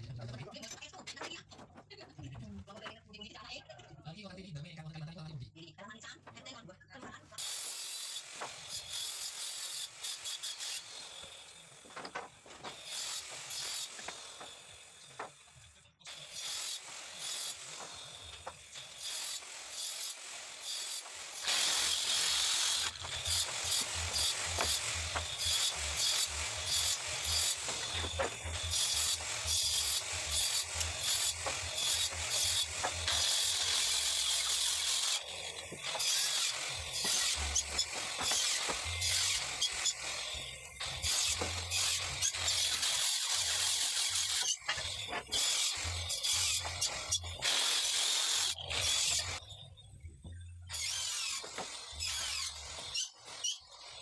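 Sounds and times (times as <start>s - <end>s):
circular saw cutting wood: 7.4s - 49.6s, 50.7s - 54.0s
wooden boards scraping and knocking: 22.9s - 29.3s.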